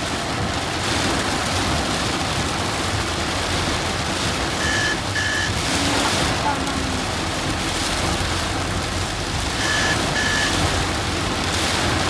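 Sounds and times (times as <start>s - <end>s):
heavy rain on windshield: 0.0s - 12.0s
electronic beep: 4.6s - 5.6s, 9.6s - 10.6s.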